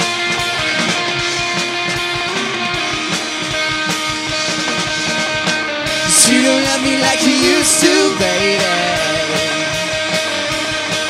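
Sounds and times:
bass guitar: 0.0s - 11.0s
drum kit beat: 0.0s - 11.0s
electric guitar: 0.0s - 11.0s.

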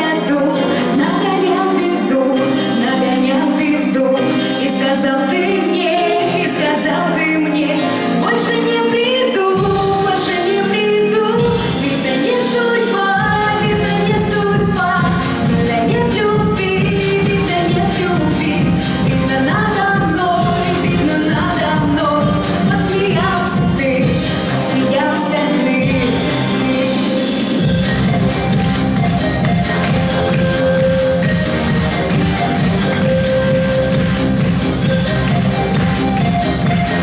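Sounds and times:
woman singing into microphone: 0.0s - 28.1s
pop backing track: 0.0s - 37.0s
bass-heavy drum beat: 27.3s - 37.0s.

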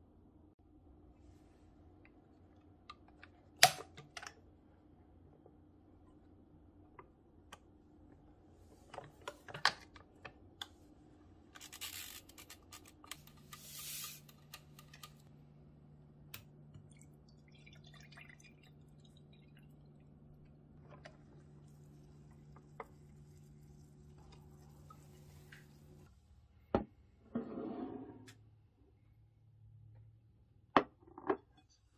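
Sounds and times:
low steady hum: 0.0s - 30.9s
short hissing rustling bursts: 13.5s - 14.3s.

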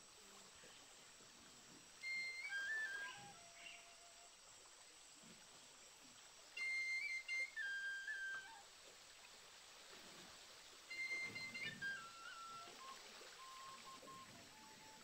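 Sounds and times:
faint forest ambience: 0.0s - 15.0s
whistled descending phrase: 2.0s - 3.8s, 6.6s - 8.6s, 10.9s - 15.0s.

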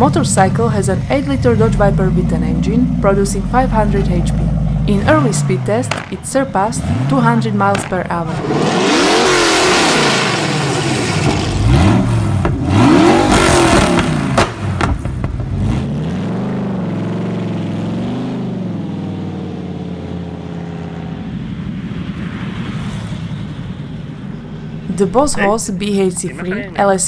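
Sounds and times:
motorcycle engine revving: 0.0s - 25.2s.

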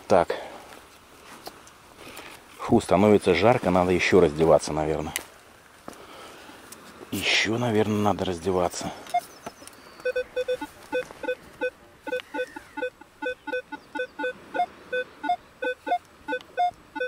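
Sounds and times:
metal detector beeps: 9.1s - 9.4s, 10.0s - 17.0s.

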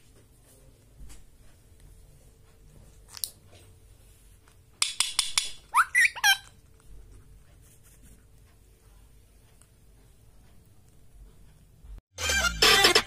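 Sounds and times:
parrot swooping chirps: 5.7s - 6.5s.

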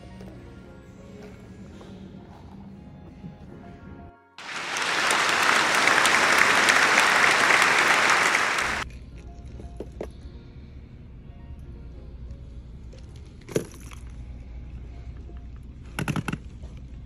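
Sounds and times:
quiet background music: 0.0s - 4.4s, 8.8s - 17.0s
loud applause: 4.4s - 8.8s.

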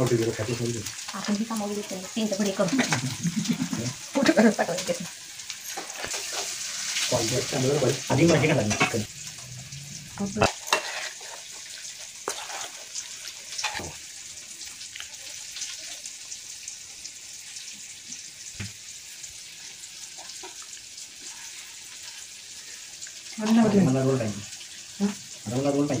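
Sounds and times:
steady hiss: 0.0s - 26.0s
spoon scraping steel bowl: 10.6s - 11.5s.

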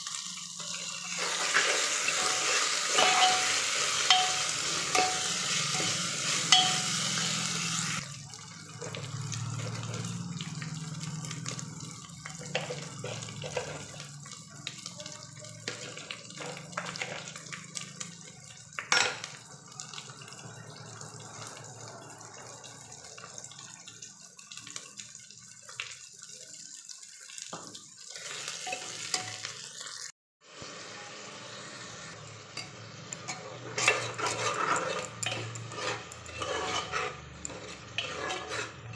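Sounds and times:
food sizzling in hot oil: 0.0s - 38.9s
spoon stirring and scraping pot: 1.1s - 7.0s, 12.4s - 14.0s, 32.6s - 38.9s.

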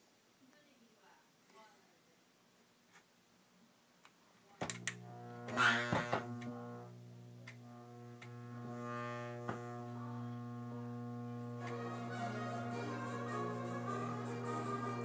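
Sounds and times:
crackles: 4.0s - 15.0s
steady low electrical hum: 4.6s - 15.0s.

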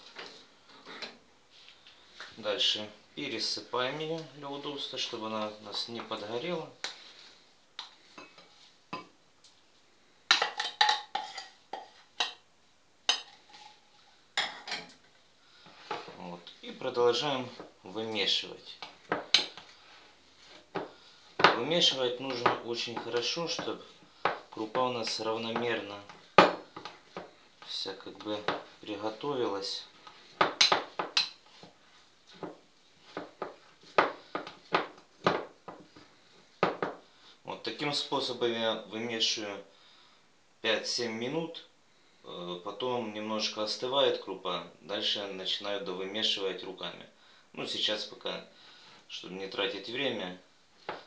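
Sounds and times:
metal spoon scraping glass bowl: 11.2s - 11.9s.

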